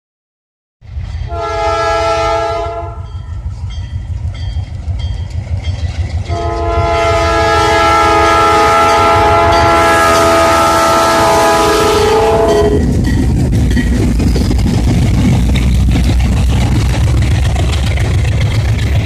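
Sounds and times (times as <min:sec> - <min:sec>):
locomotive engine rumbling: 0:00.8 - 0:19.0
train air horn blasts: 0:01.3 - 0:03.2, 0:06.3 - 0:13.0.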